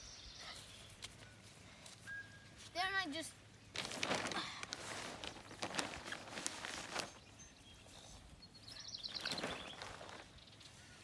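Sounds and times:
plastic sheeting rustling: 3.7 - 7.3, 9.1 - 10.4
bird chirping trill: 7.1 - 11.0.

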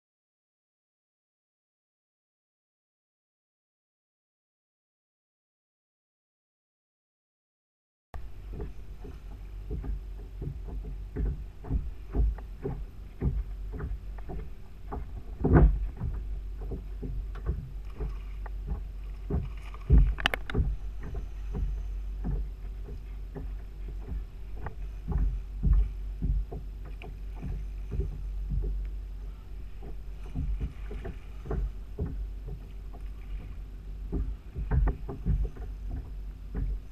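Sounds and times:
knocks against boat: 8.2 - 36.9
waves slapping against kayak hull: 8.2 - 36.9
wind rumbling on microphone: 8.2 - 36.9.

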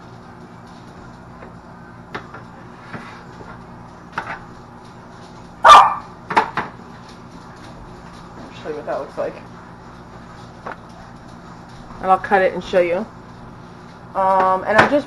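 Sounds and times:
steady low hum: 0.0 - 15.0
dog barking: 5.6 - 6.1.

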